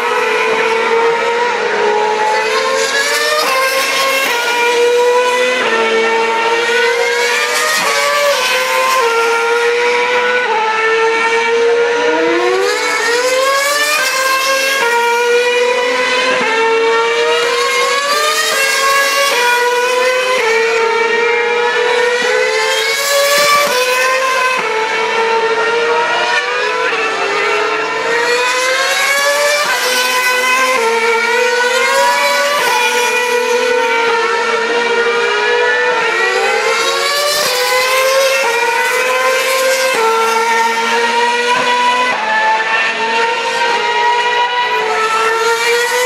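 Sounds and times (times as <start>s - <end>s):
racing car engines at high revs: 0.0s - 46.0s.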